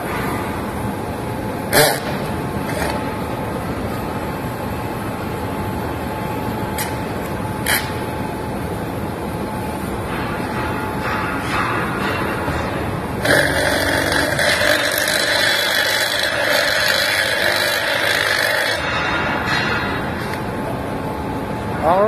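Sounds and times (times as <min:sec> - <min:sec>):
steady loud noise: 0:00.0 - 0:22.0
cordless drill boring metal pipe: 0:13.2 - 0:18.8.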